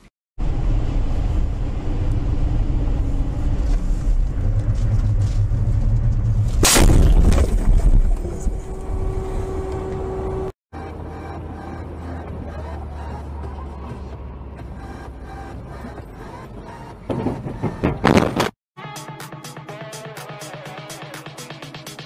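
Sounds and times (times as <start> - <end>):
car road and engine rumble: 0.0 - 18.5
car crash: 6.4 - 8.5.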